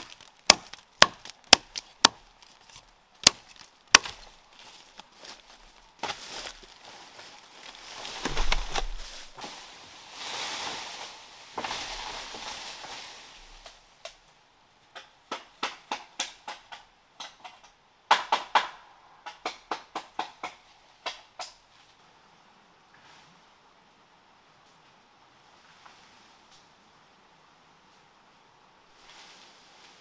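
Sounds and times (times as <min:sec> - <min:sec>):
rustling and scraping: 0:00.0 - 0:13.7, 0:29.0 - 0:30.0.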